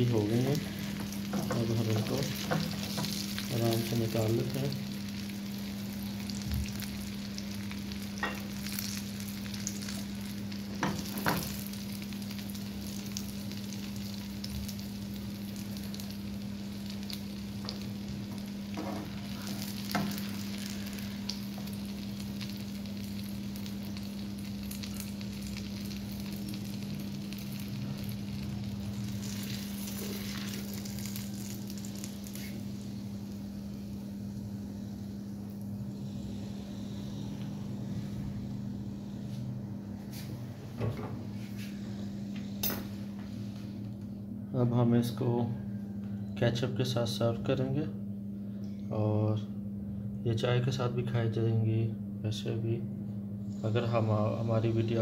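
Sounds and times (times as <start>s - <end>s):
oil sizzling in a frying pan: 0.0s - 36.1s
steady low hum: 0.0s - 55.0s.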